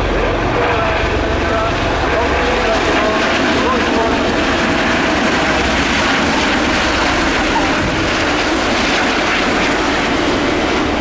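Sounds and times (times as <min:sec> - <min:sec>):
helicopters flying past: 0:00.0 - 0:11.0.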